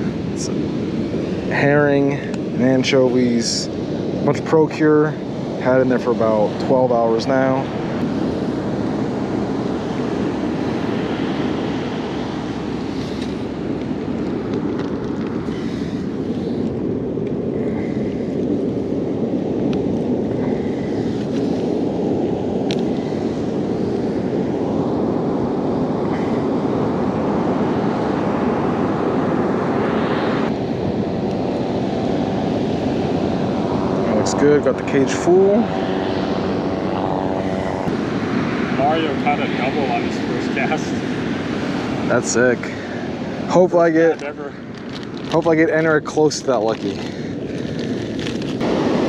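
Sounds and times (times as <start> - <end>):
ocean surf: 0.0 - 49.0
wind buffeting microphone: 0.0 - 49.0
plastic bag rustling: 44.7 - 45.6, 46.6 - 48.6.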